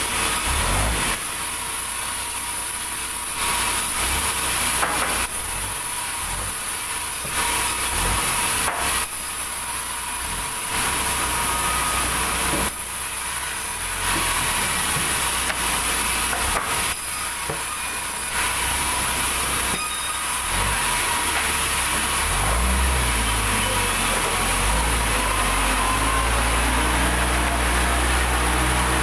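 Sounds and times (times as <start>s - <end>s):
saw motor humming: 9.8s - 29.0s.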